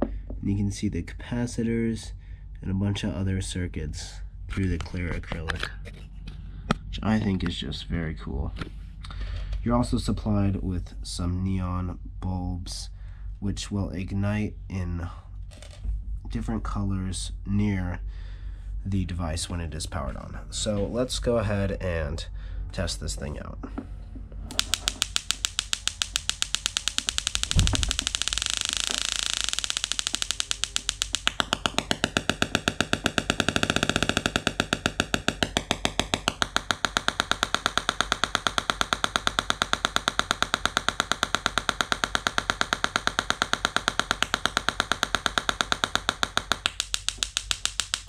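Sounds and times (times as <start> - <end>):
tesla coil sparks crackling: 24.5 - 48.0.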